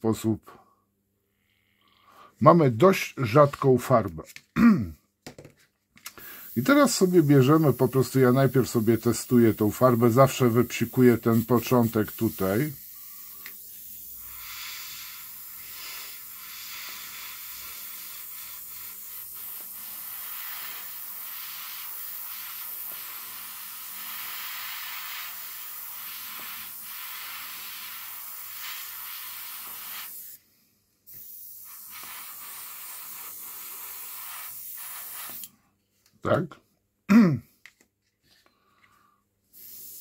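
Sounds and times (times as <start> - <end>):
airbrush spraying hiss: 6.2 - 30.4, 31.0 - 35.5, 39.5 - 40.0.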